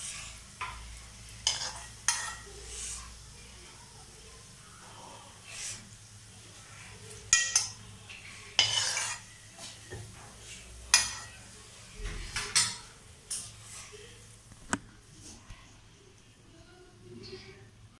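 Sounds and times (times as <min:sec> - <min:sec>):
oil frying sizzle: 0:00.0 - 0:16.3
spoon clinking on metal pan: 0:01.4 - 0:02.4, 0:07.3 - 0:07.8, 0:08.6 - 0:09.3, 0:10.9 - 0:11.3
spoon scraping metal pan: 0:01.4 - 0:03.0, 0:07.3 - 0:11.4.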